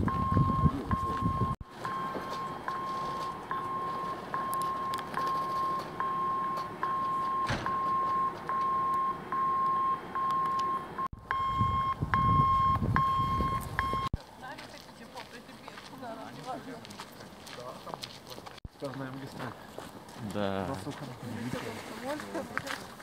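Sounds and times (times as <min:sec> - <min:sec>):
electronic warning beeps: 0:00.0 - 0:14.2.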